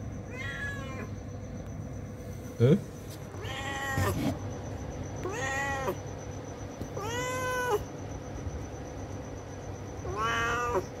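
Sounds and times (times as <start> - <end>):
cat meowing: 0.3 - 1.1, 3.3 - 4.2, 5.2 - 6.0, 6.9 - 7.9, 10.0 - 10.9.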